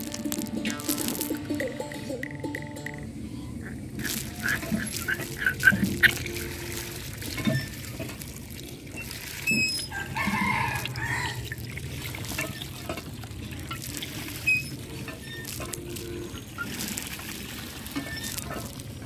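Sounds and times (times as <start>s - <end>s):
water trickling into plastic bucket: 0.0s - 1.8s, 3.6s - 19.0s
rooster crowing: 9.8s - 11.6s.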